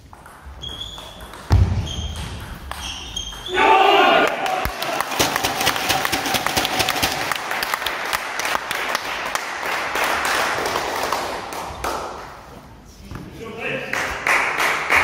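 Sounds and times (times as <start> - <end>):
audience applause: 4.2 - 11.6.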